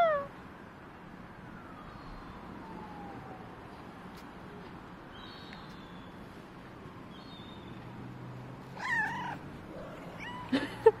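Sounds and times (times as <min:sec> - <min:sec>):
cat meowing: 0:00.0 - 0:00.3, 0:08.8 - 0:10.6.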